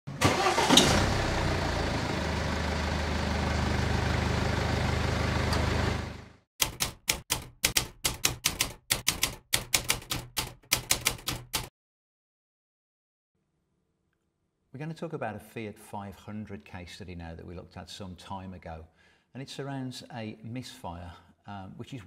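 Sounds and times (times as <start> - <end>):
car engine starting and running: 0.1 - 6.4
typewriter keystrokes: 6.6 - 11.7.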